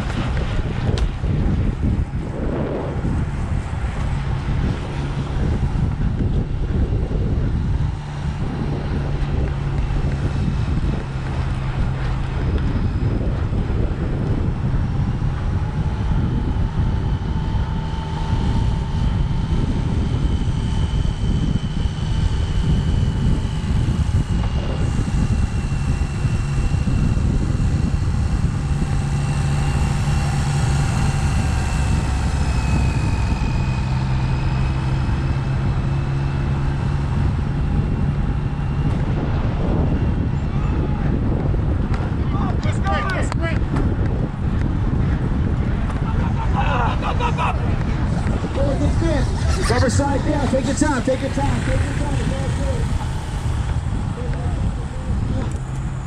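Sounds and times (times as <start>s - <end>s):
low steady hum: 0.0s - 42.2s
faint whines: 0.0s - 43.4s, 45.6s - 56.0s
wind buffeting microphone: 0.0s - 56.0s.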